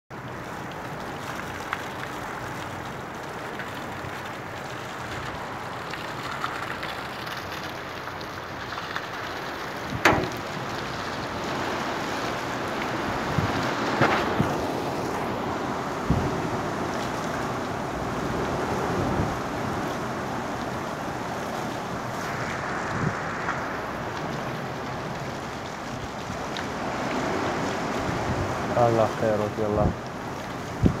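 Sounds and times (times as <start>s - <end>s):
heavy rain: 0.1s - 31.0s
gusting wind: 8.4s - 31.0s
sharp knocks: 10.0s - 10.7s.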